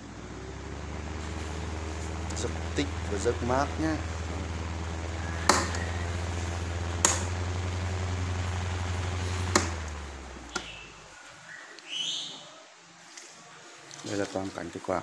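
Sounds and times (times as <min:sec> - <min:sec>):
electric fan motor hum: 0:00.0 - 0:11.3
rising squeak: 0:00.4 - 0:07.4
sharp clicks: 0:07.0 - 0:07.6, 0:09.4 - 0:10.8.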